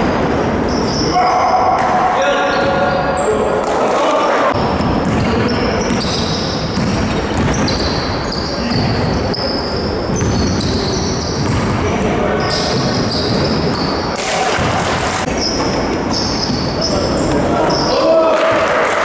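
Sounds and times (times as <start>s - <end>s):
players' voices echoing: 0.0s - 19.0s
basketball bouncing on court: 4.6s - 9.5s, 10.1s - 17.5s.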